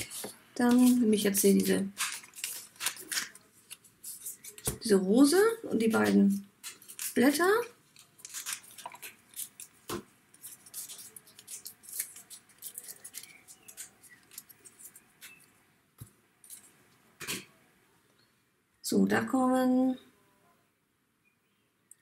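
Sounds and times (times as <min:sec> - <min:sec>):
paper rustling and crackling: 0:00.0 - 0:04.9, 0:05.8 - 0:15.6.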